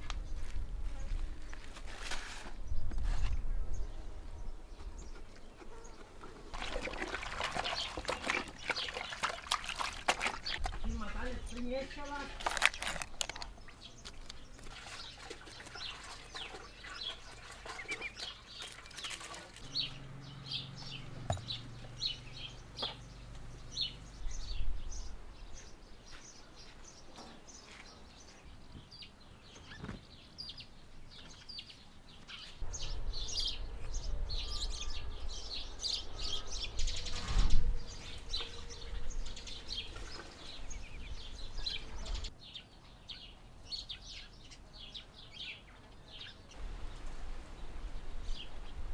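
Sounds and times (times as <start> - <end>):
birds chirping: 2.7 - 48.9.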